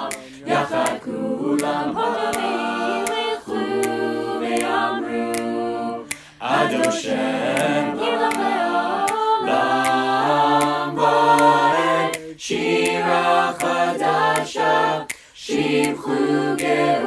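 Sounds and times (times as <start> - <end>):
choir singing a cappella: 0.0 - 17.0
light regular tick: 0.1 - 4.0, 4.6 - 9.2, 12.1 - 16.8.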